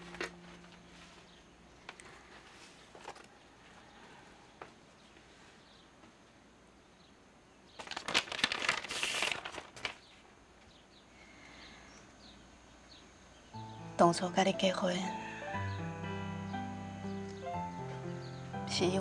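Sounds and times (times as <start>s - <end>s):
paper rustling and crinkling: 1.8s - 3.4s, 7.8s - 10.3s.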